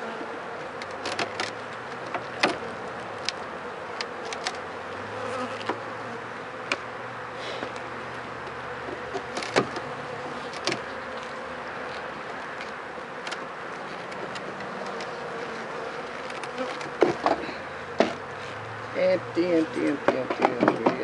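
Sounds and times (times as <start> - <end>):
honeybees buzzing: 0.0 - 21.0
metal hive tool prying frames: 8.8 - 10.9, 16.2 - 18.2, 19.8 - 21.0.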